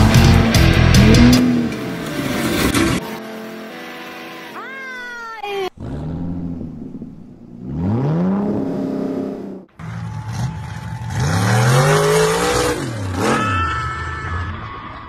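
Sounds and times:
pickup truck engine revving: 0:05.8 - 0:13.4.

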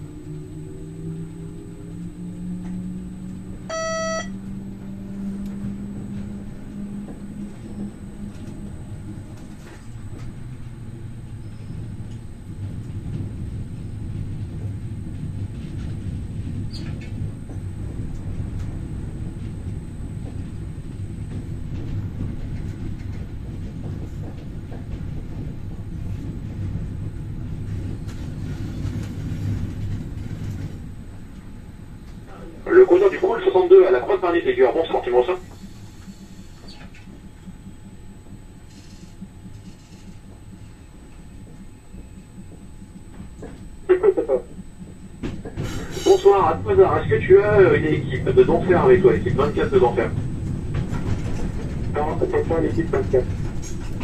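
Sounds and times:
train rumble and hum: 0:00.0 - 0:54.0
short electronic beep: 0:03.7 - 0:04.4.

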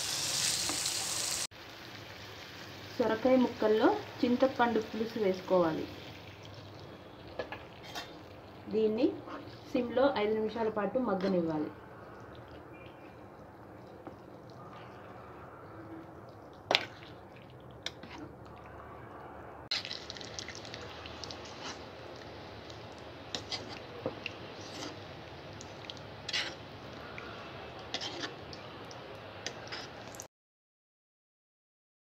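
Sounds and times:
spoon stirring thick curry: 0:12.2 - 0:18.7, 0:19.7 - 0:30.0.

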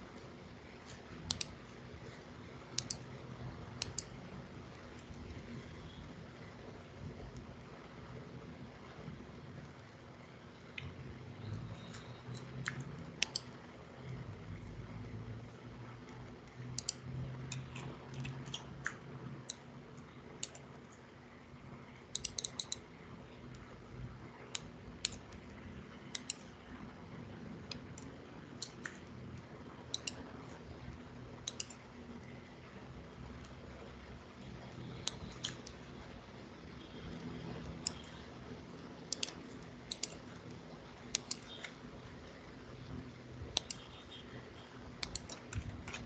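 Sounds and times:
faint low steady hum: 0:00.0 - 0:46.0
computer mouse clicks: 0:00.8 - 0:04.3, 0:10.7 - 0:14.2, 0:16.0 - 0:20.7, 0:22.1 - 0:22.9, 0:24.4 - 0:26.8, 0:27.6 - 0:29.1, 0:29.8 - 0:30.6, 0:31.4 - 0:31.9, 0:34.5 - 0:36.0, 0:36.8 - 0:38.3, 0:39.0 - 0:44.3, 0:45.0 - 0:46.0.

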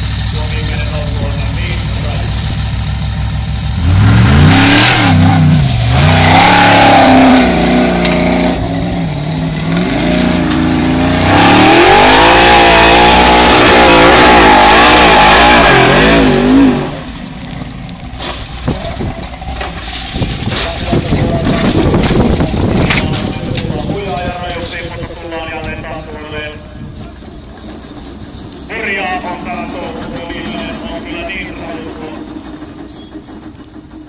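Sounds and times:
buggy engine revving hard: 0:00.0 - 0:17.4, 0:19.0 - 0:24.0.

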